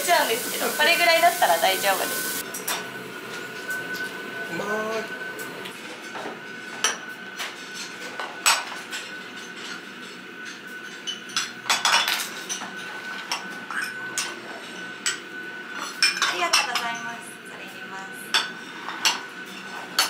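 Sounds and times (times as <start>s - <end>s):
thin high whine: 0.0s - 20.0s
tableware clinking: 2.5s - 4.2s, 6.0s - 17.1s, 18.3s - 20.0s.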